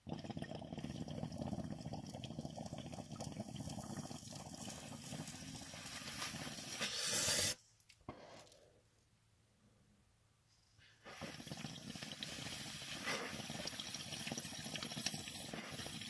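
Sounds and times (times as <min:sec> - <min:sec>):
bong water bubbling: 0:00.0 - 0:05.8, 0:11.1 - 0:16.0.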